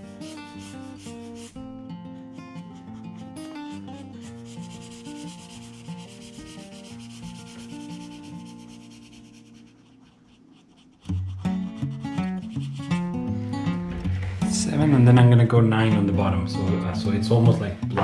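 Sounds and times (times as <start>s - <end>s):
acoustic guitar music: 0.0s - 9.9s, 11.0s - 18.0s
felt-tip marker rubbing on paper: 0.0s - 13.8s.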